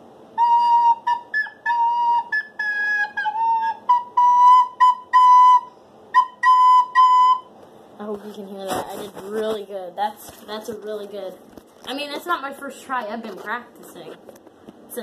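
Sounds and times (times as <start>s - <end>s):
recorder playing notes: 0.4s - 7.6s.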